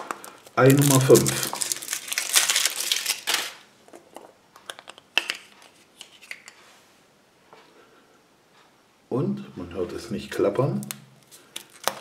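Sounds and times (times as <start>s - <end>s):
foil wrapper crinkling: 0.0s - 3.7s, 11.2s - 12.0s
chocolate egg cracking: 0.0s - 5.5s, 10.8s - 12.0s.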